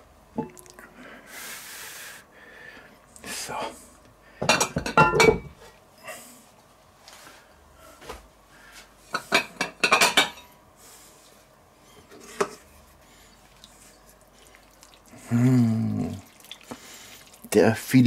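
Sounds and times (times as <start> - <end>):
ceramic plates clinking: 4.4 - 5.5, 9.2 - 10.5
person humming: 15.2 - 16.2.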